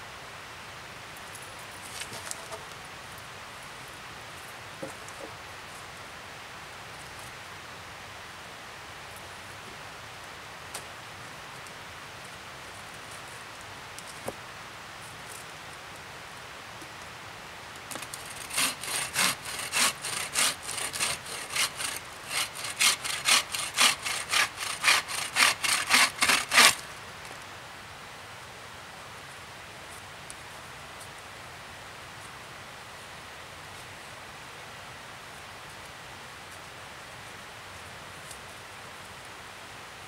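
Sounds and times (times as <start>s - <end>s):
hand saw cutting log: 18.0s - 26.8s.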